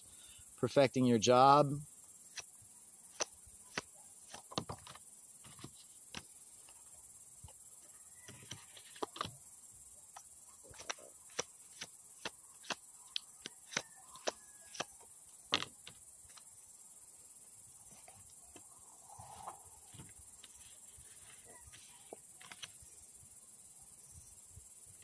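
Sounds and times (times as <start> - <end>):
cards being shuffled: 4.3 - 6.2, 21.3 - 22.8.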